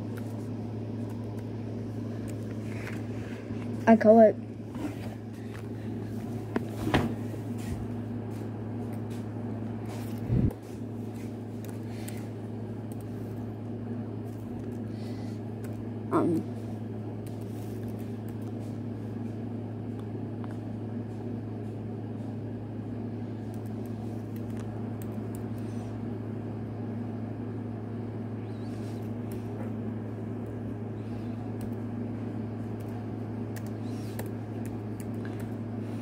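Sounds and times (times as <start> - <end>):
steady low hum: 0.0 - 36.0
laptop keyboard typing clicks: 23.5 - 25.7, 32.8 - 35.6.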